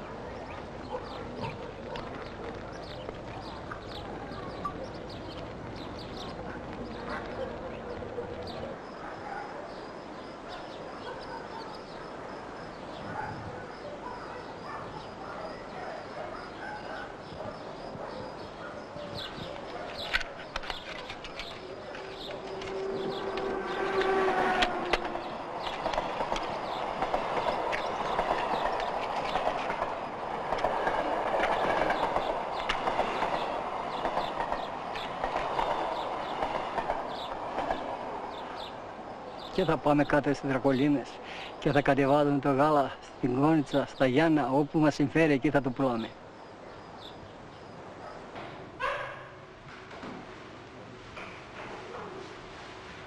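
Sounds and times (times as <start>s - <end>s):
train clattering: 19.2s - 41.9s
train horn: 22.0s - 25.4s.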